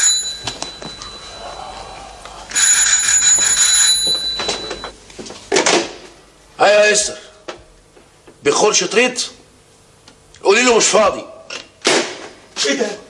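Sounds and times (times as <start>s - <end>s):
telephone ringing: 0.0s - 1.6s, 2.5s - 5.0s.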